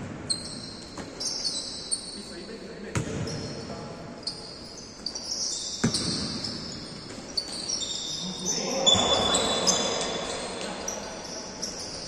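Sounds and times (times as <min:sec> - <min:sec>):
sneakers squeaking on court: 0:00.0 - 0:12.0.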